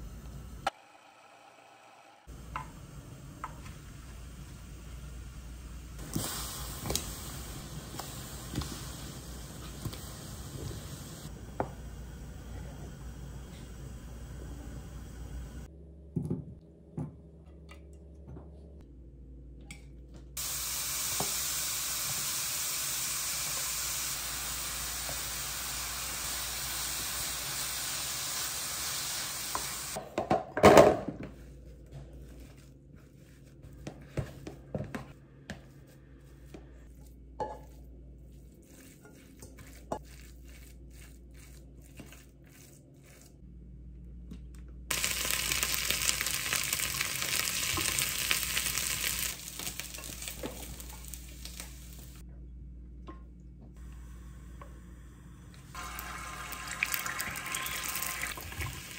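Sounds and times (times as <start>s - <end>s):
potatoes sizzling in a frying pan: 20.4s - 30.0s, 44.9s - 52.2s, 55.7s - 58.9s.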